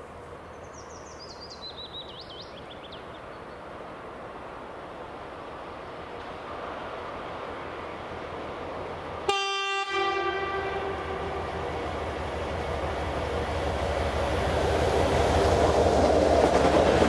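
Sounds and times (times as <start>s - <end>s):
train rumble: 0.0s - 17.0s
locomotive horn blast: 9.3s - 11.9s.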